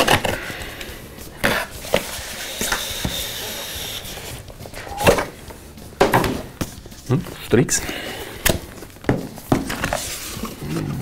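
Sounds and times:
box scraping out of sleeve: 9.6 - 11.0.

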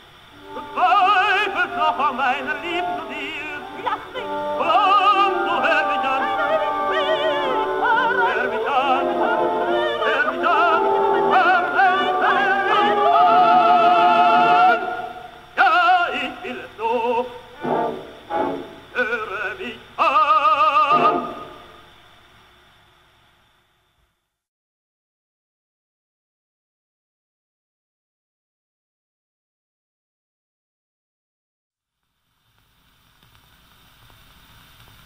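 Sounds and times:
orchestral accompaniment: 0.3 - 15.3, 17.6 - 18.9, 20.9 - 21.7
operatic singing: 0.4 - 21.7.

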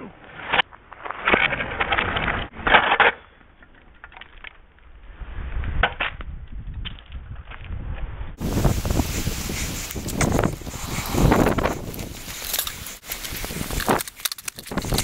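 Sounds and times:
scooter wheels rumbling: 8.4 - 15.0.

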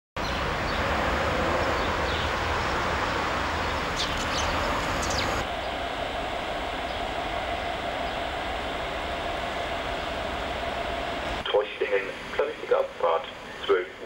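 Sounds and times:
city street traffic: 0.2 - 6.2
steady hum: 0.2 - 14.0.

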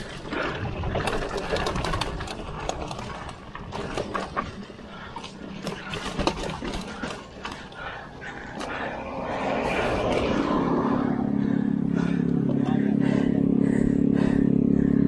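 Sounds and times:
bike chain and frame rattling: 0.0 - 14.3
low rumble: 7.8 - 15.0.

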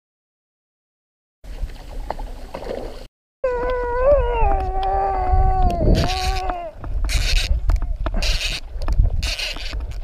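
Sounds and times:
howl-like call: 3.4 - 6.8.

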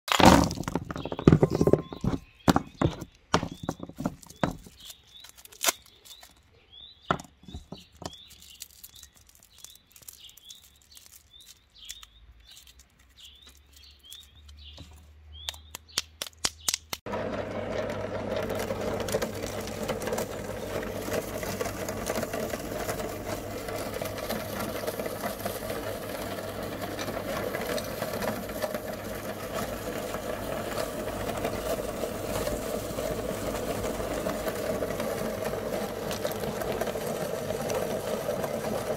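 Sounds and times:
bird chirps: 1.0 - 16.8
wrapper clicks and handling: 3.1 - 6.6, 7.5 - 17.0
meat grinder crushing candy: 3.5 - 6.3, 7.5 - 14.7, 17.1 - 38.9.

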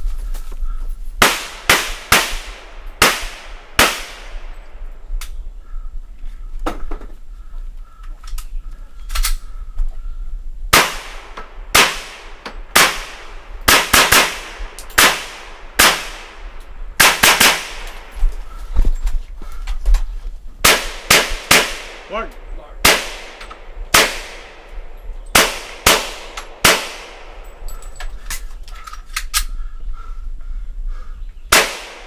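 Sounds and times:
pistol shots: 1.2 - 4.5, 10.7 - 16.4, 17.0 - 18.1, 20.6 - 22.2, 22.8 - 24.7, 25.3 - 27.5, 31.5 - 32.0.

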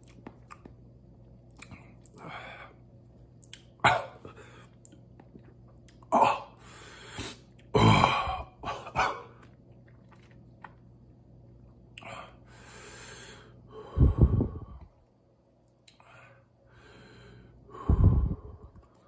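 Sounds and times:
man breathing hard: 6.6 - 7.4, 12.1 - 14.9, 16.0 - 18.8.

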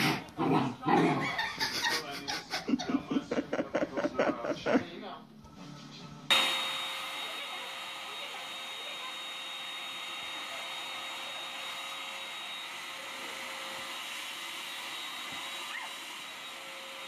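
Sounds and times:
vacuum cleaner running: 6.3 - 17.0.

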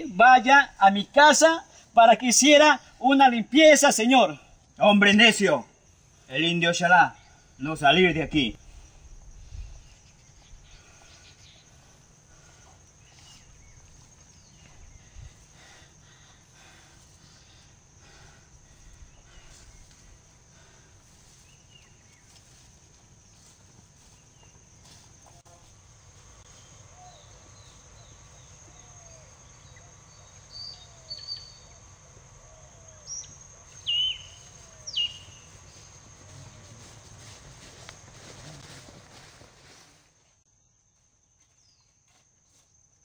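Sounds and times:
high insect trill: 0.0 - 43.0
birds calling: 5.4 - 22.7, 26.5 - 36.9
sharp bird chirps: 26.6 - 31.8, 32.6 - 35.9.

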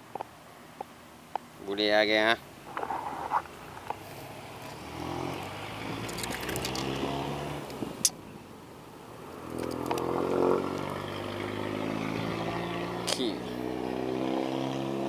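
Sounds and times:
vehicle engine hum: 0.0 - 15.0.

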